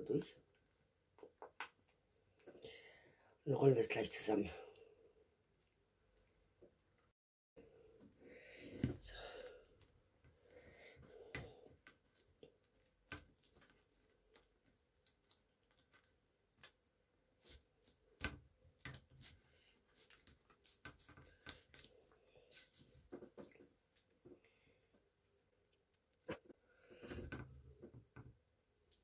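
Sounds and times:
plastic tube crinkling and clicking: 11.4s - 16.8s.

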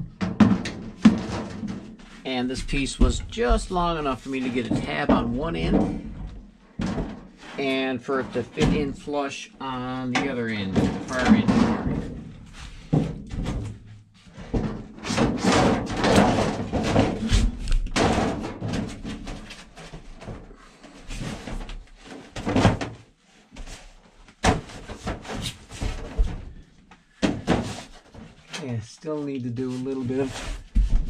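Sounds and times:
metal sheet wobbling and rustling: 0.0s - 7.6s, 10.1s - 20.5s.

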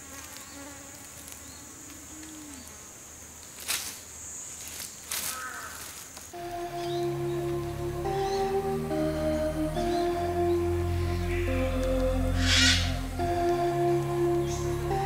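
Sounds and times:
insects droning high-pitched: 0.3s - 15.0s.

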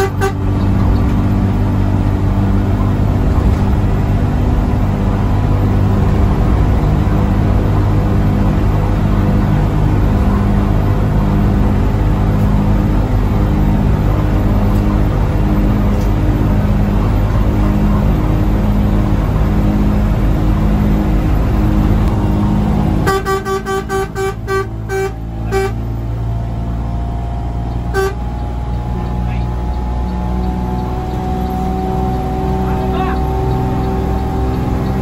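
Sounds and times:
bus horn toots: 0.0s - 0.8s, 22.9s - 26.0s, 27.7s - 28.6s
diesel engine droning: 0.0s - 35.0s.

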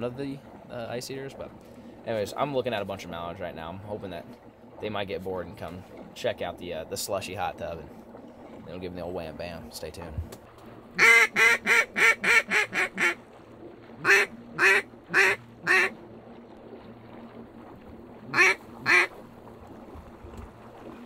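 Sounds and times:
duck call quacks: 11.0s - 13.2s, 14.0s - 15.9s, 18.3s - 19.1s.

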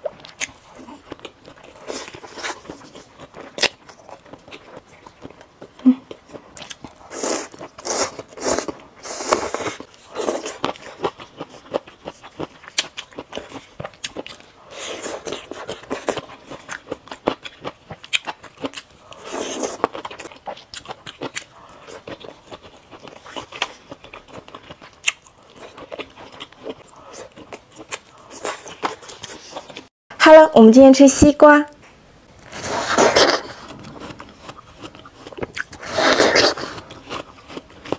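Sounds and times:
chewing food: 0.0s - 29.9s, 32.5s - 37.9s
noodles slurped: 32.4s - 37.7s.

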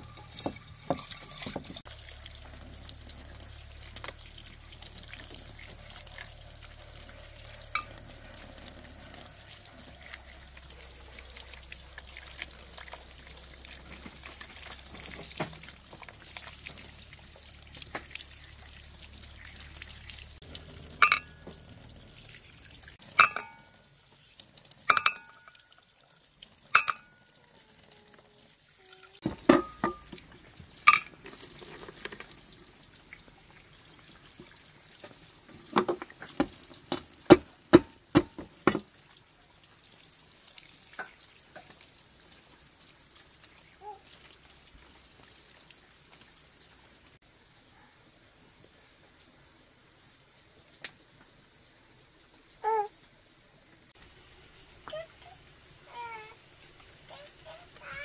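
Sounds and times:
utensils clinking on cookware: 0.0s - 1.8s, 20.9s - 21.5s, 23.0s - 23.7s, 24.9s - 25.6s, 26.8s - 27.2s, 30.9s - 32.2s.

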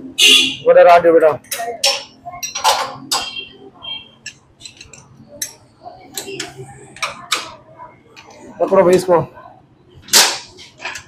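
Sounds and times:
metal tools clinking on metal: 1.4s - 3.4s, 4.2s - 5.6s.

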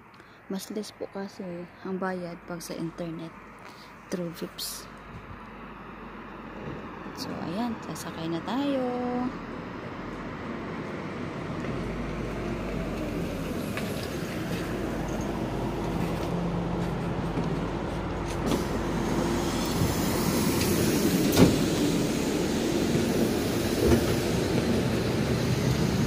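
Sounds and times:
bus engine running: 2.2s - 26.0s.

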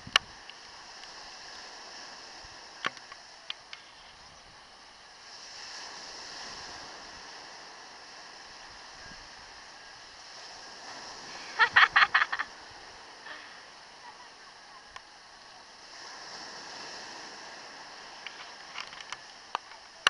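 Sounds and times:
sea surf washing: 0.0s - 20.0s.

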